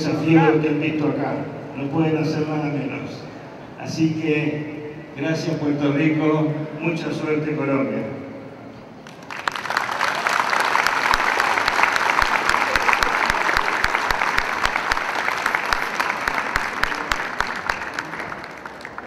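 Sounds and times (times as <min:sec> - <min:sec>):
audience applauding: 0:09.0 - 0:19.0.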